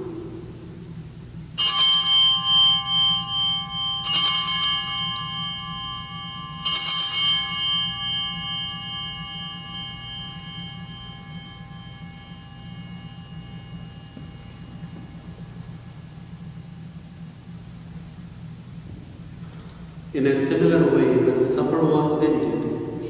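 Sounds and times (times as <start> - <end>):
altar bells ringing: 1.5 - 18.5.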